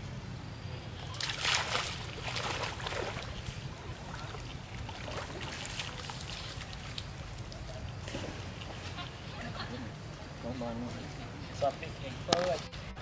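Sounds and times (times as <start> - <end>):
monkeys splashing in water: 1.0 - 10.4.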